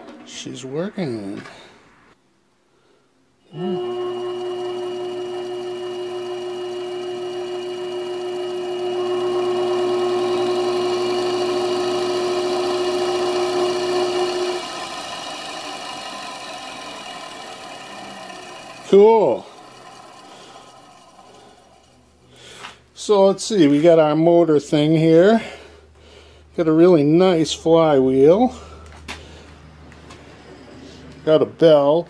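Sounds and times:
electric motor whining: 3.5 - 22.3.

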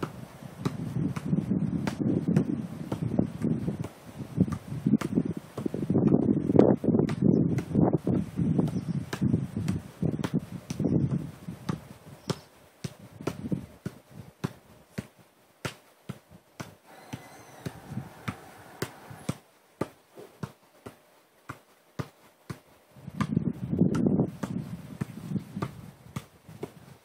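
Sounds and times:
football taps off feet: 15.7 - 20.6.

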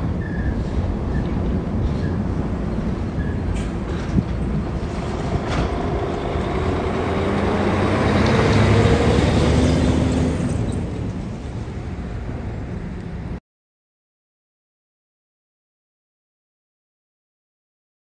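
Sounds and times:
truck driving past: 2.4 - 13.4.

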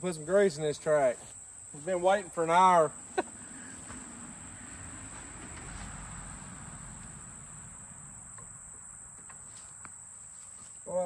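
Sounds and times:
insects chirring: 0.0 - 11.0
faint rustling: 9.2 - 11.0.

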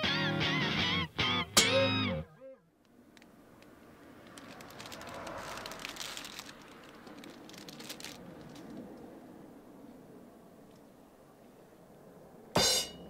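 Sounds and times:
plastic packaging crinkling: 4.2 - 8.8.

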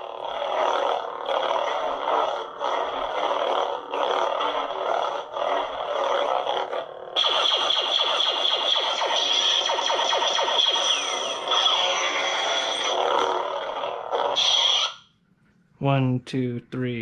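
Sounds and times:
lightsaber electronic hum: 0.0 - 15.2.

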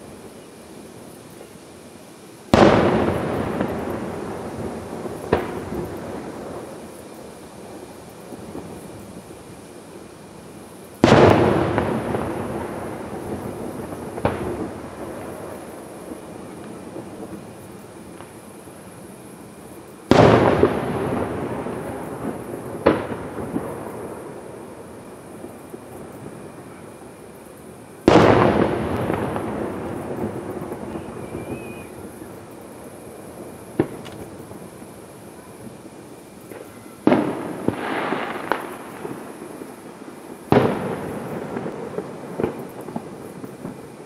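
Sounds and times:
smaller firework bang: 2.5 - 6.3, 11.0 - 15.5, 20.1 - 24.3, 28.0 - 32.2, 33.7 - 34.4, 36.5 - 39.4, 40.5 - 43.8
firework shell booming: 2.5 - 6.7, 20.1 - 24.4, 28.0 - 34.8, 36.5 - 39.7.

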